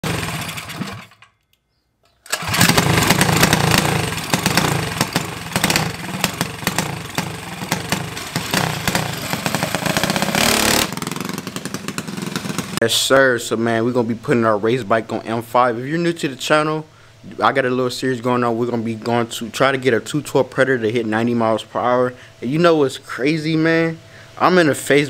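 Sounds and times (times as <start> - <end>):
mini bike engine running: 0.0 - 1.2, 2.4 - 12.8.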